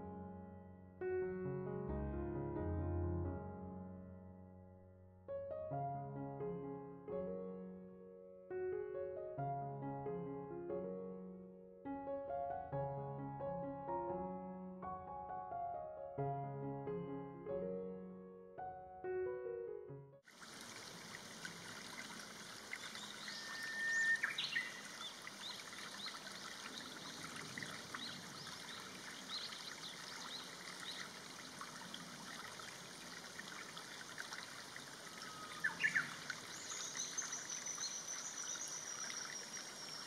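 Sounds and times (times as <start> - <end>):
running water: 20.3 - 40.0
bird chirps and calls: 22.9 - 25.6, 35.2 - 40.0
long falling bird whistle: 23.0 - 24.8, 35.1 - 40.0.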